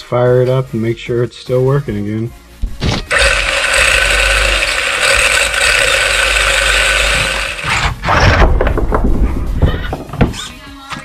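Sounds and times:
electric motor whirring: 3.1 - 8.3.

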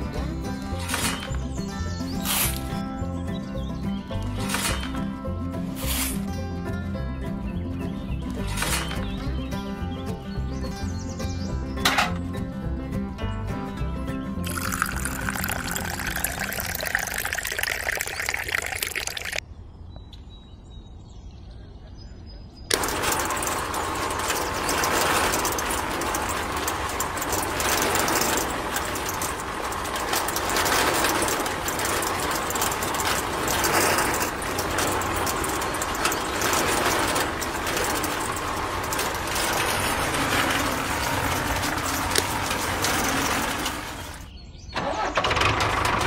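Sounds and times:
small motor and gearbox whirring: 0.0 - 2.9, 14.4 - 19.4, 22.7 - 44.3.

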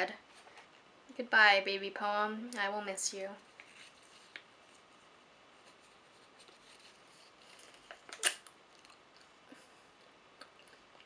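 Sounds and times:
paper rustling: 3.5 - 8.4
paper ripping: 5.7 - 8.5.

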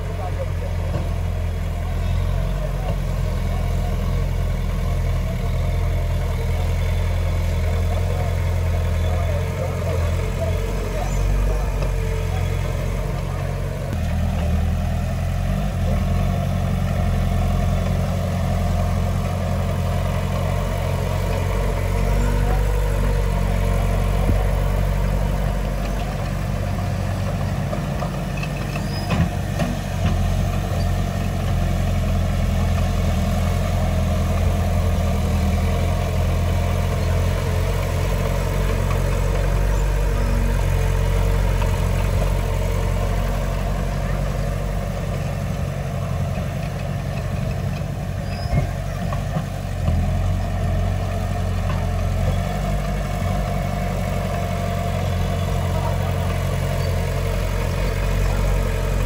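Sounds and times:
heavy diesel engine running: 0.0 - 59.0.

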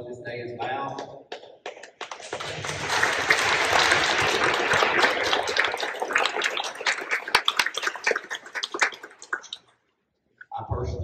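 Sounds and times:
audience applauding: 1.6 - 9.7.

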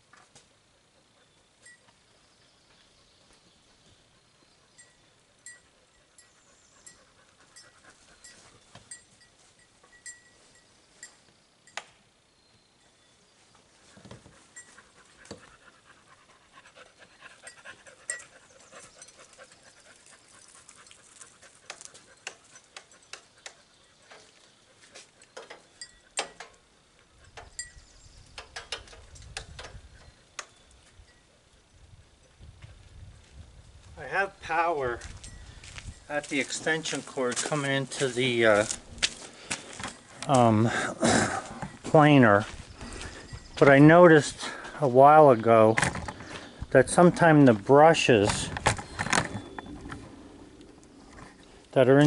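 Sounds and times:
dog panting: 3.1 - 8.7, 14.2 - 25.4
footsteps on gravel: 35.0 - 40.6, 41.3 - 45.5.

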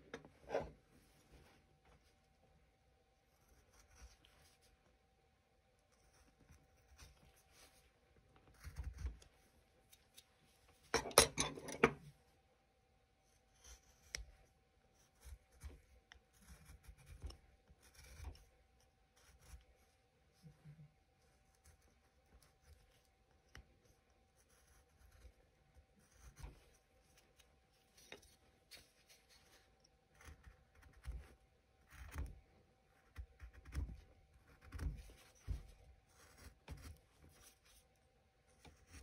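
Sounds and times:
carving tool cutting wood: 8.5 - 9.1, 15.1 - 18.4, 24.2 - 25.4, 33.0 - 37.0.

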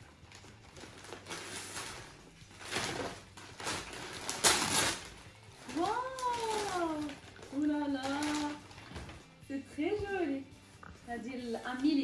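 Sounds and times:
gift packaging rustling: 0.0 - 10.4.

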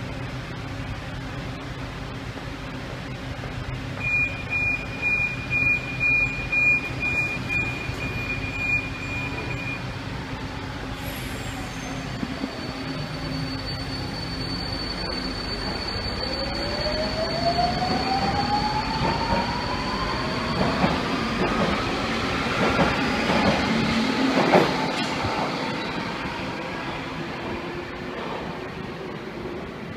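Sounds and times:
hum of standing train: 0.0 - 29.9
train door warning beeps: 4.0 - 9.9, 12.0 - 21.6.

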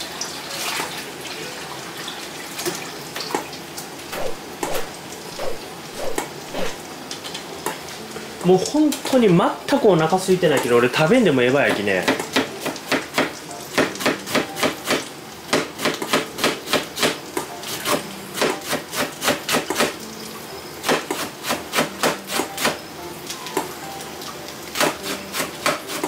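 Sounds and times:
knife chopping on wooden board: 12.0 - 17.2.

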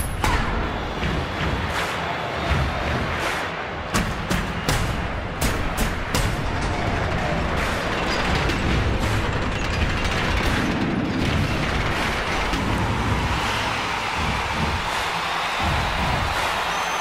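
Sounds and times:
heavy mechanical grinding: 5.9 - 13.6.

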